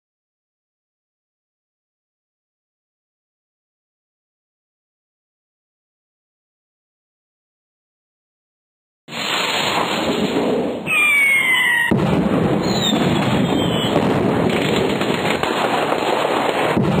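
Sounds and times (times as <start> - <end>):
firework rocket launch hiss: 9.1 - 11.9
fireworks crackling: 9.1 - 17.0
firework whistle: 10.8 - 14.1.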